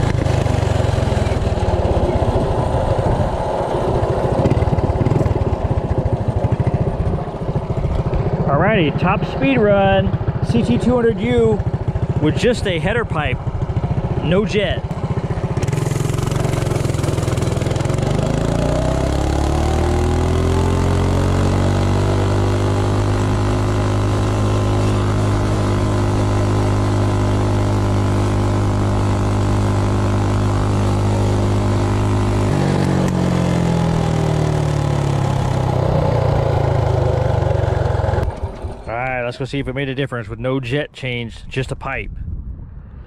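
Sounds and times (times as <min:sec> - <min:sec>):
minibike engine at full throttle: 0:00.0 - 0:39.7.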